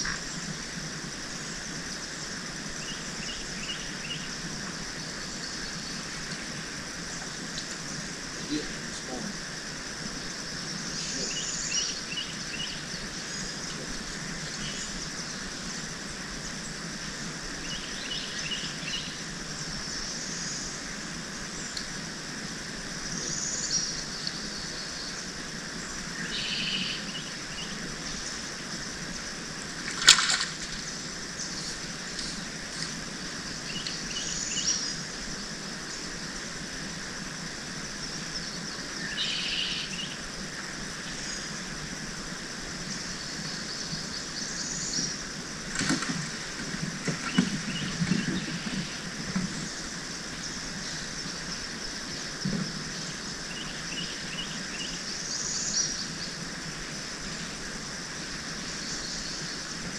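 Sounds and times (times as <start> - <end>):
steady hiss: 0.0 - 59.9.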